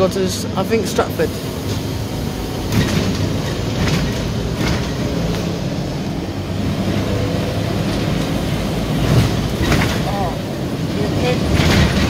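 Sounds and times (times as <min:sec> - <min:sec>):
bus engine rumble: 0:00.0 - 0:12.0
bodywork rattles and knocks: 0:02.6 - 0:05.6, 0:07.9 - 0:10.4, 0:11.3 - 0:12.0.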